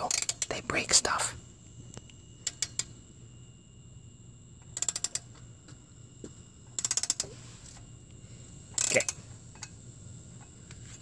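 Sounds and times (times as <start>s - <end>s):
ratchet wrench clicking: 0.0s - 0.5s, 2.4s - 3.0s, 4.6s - 5.4s, 6.7s - 7.4s, 8.7s - 9.7s.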